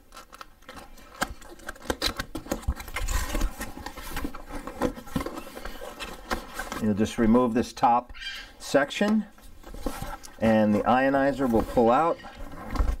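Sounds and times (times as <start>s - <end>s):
cardboard box being opened: 0.2s - 6.9s, 9.5s - 13.0s
cardboard scraping rub: 9.5s - 13.0s.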